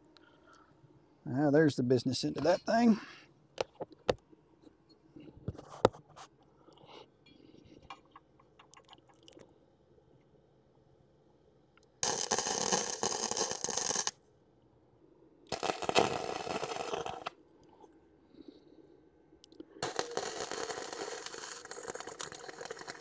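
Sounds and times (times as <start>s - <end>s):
metalworking tool crackling burst: 12.0s - 14.2s, 15.5s - 17.3s, 19.8s - 23.0s.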